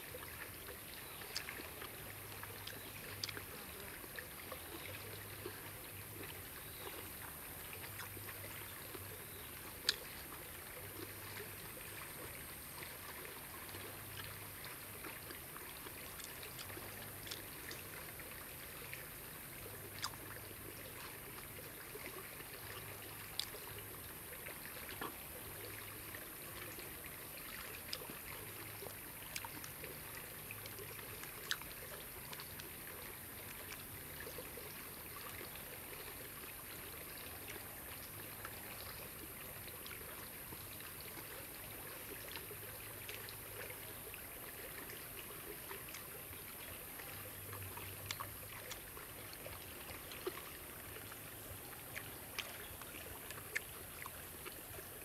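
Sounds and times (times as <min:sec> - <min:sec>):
stream trickling: 0:00.0 - 0:55.0.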